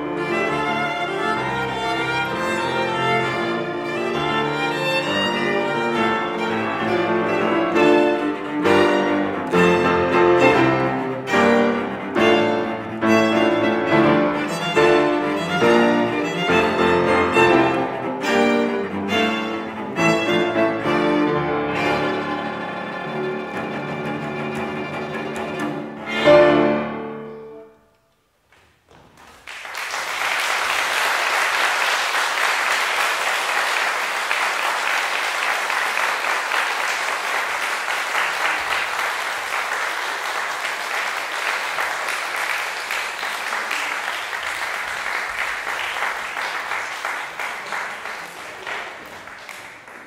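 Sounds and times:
piano trio playing: 0.0 - 27.9
audience applause: 29.1 - 50.0.

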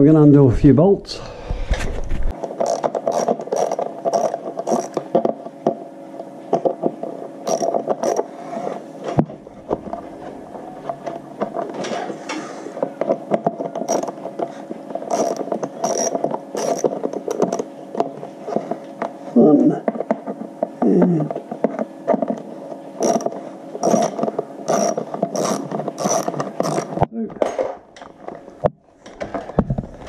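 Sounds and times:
ratchet wrench clicking: 7.5 - 8.2, 13.9 - 14.1, 15.1 - 16.9, 23.0 - 24.1, 24.7 - 26.9.

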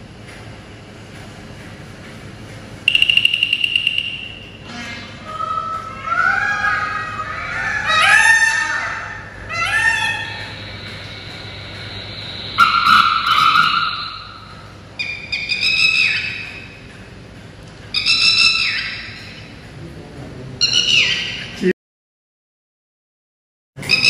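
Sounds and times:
lapwing calls over speaker: 2.9 - 16.7, 17.9 - 19.4, 20.6 - 21.7
bird call: 7.8 - 16.7.

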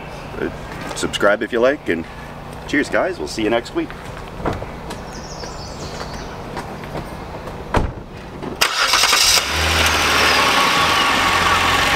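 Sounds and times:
vehicle engine starting and idling: 6.4 - 11.9
thump: 7.7 - 8.1.

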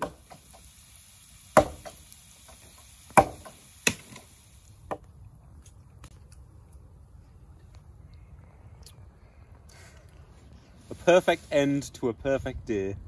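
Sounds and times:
fire hissing: 0.0 - 13.0
sharp knocks or pops: 1.6 - 2.0, 3.2 - 4.2.

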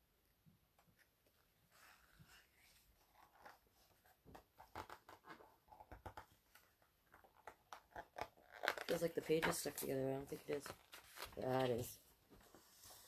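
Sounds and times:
paper pages rustling and crackling: 8.5 - 13.0.

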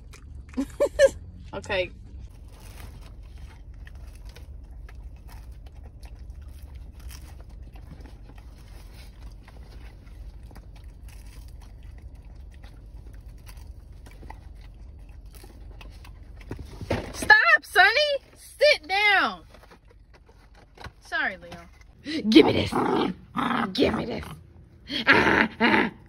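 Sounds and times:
dog chewing crunchy food: 0.0 - 17.2, 19.4 - 22.0
low rumble inside car: 0.0 - 22.7.

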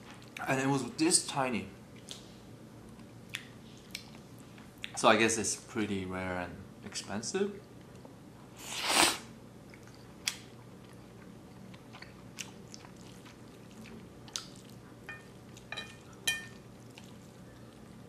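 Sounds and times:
person slurping noodles: 8.6 - 9.3
wet chewing: 9.7 - 15.7.

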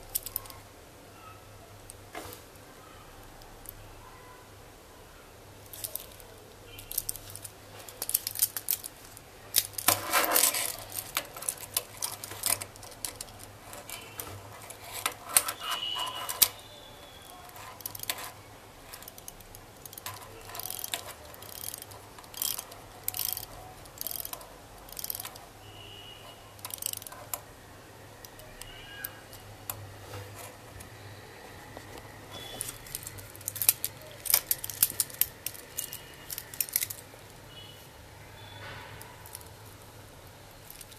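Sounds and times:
watch bezel ratchet clicks: 18.9 - 25.4, 26.6 - 27.4.

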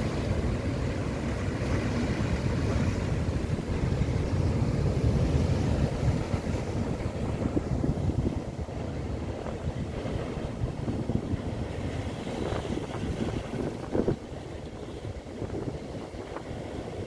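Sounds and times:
surf washing among boulders: 0.0 - 17.0
wind buffeting microphone: 0.0 - 17.0.

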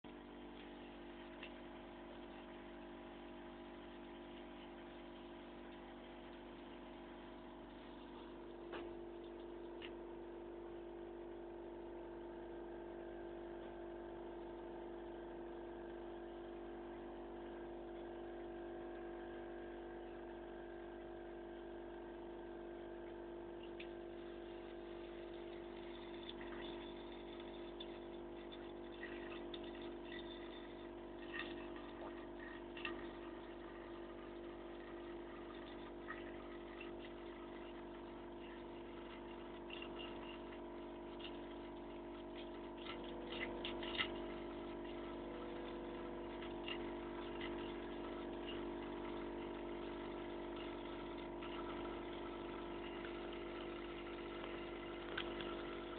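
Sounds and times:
steady hum: 0.0 - 55.9.

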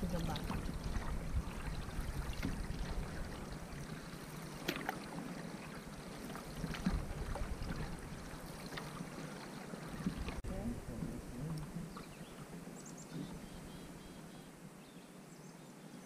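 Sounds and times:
sharp water splashes: 0.0 - 10.4
water lapping against canoe hull: 0.0 - 14.5.

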